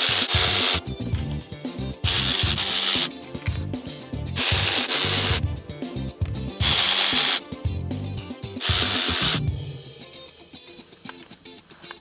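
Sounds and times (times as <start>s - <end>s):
cordless electric ratchet running: 0.0s - 1.0s, 2.0s - 3.2s, 4.4s - 5.4s, 6.6s - 7.5s, 8.6s - 9.5s
background music: 0.0s - 12.0s.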